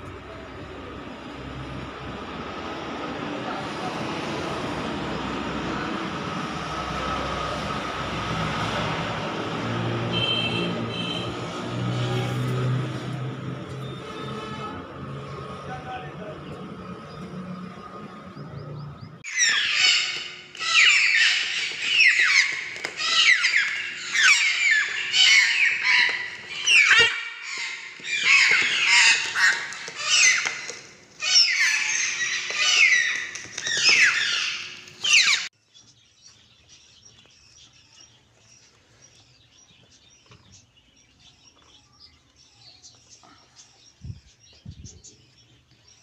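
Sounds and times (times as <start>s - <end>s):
parrot chick squawking: 19.2s - 35.5s.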